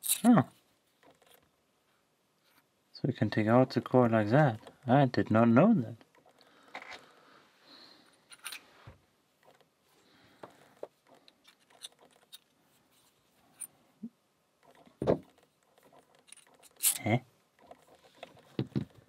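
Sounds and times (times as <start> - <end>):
metallic clicks and scrapes: 0.0 - 0.3, 8.2 - 8.7, 10.6 - 13.8, 14.6 - 19.0.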